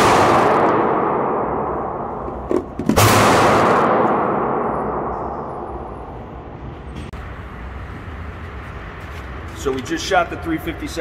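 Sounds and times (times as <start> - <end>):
gunshot echoing indoors: 0.0 - 6.6.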